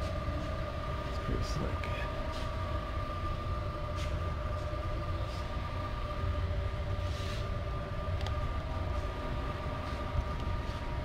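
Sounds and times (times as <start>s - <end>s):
high hum: 0.0s - 11.0s
low machine rumble: 0.0s - 11.0s
faint brushing sounds: 2.2s - 2.6s, 3.8s - 5.6s, 6.9s - 7.8s, 8.8s - 11.0s.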